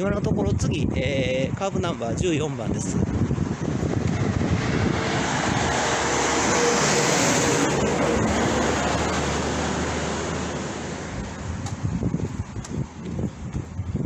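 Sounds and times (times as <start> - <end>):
car passing close by: 3.6 - 11.5.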